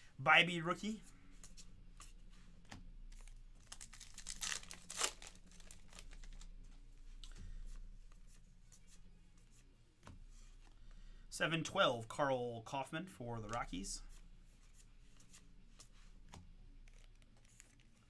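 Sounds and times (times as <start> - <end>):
cards rustling and sliding: 1.4 - 6.5, 13.5 - 18.0
wrapper tearing and crinkling: 3.6 - 6.5.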